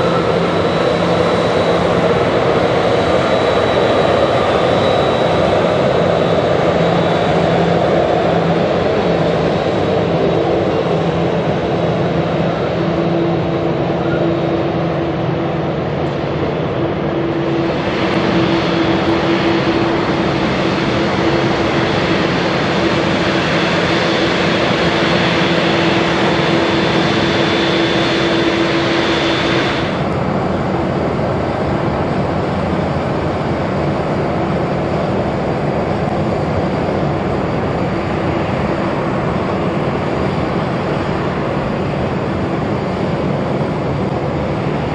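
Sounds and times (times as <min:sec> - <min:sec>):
jet engines rumbling: 0:00.0 - 0:44.9.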